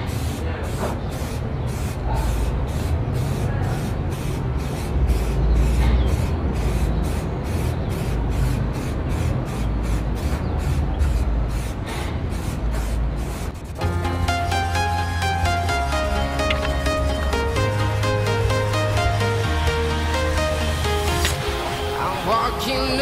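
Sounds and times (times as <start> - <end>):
aerosol spray can hissing: 0.0 - 13.8
background music with beat: 13.8 - 23.0.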